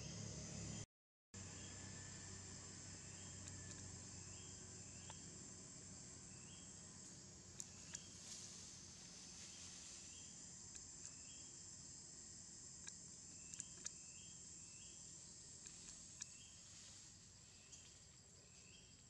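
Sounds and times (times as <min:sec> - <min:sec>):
high-pitched insect drone: 0:01.4 - 0:18.9
faint ticks: 0:03.2 - 0:04.1, 0:04.9 - 0:05.3, 0:07.0 - 0:08.8, 0:10.2 - 0:11.5, 0:12.7 - 0:14.9, 0:15.5 - 0:16.6.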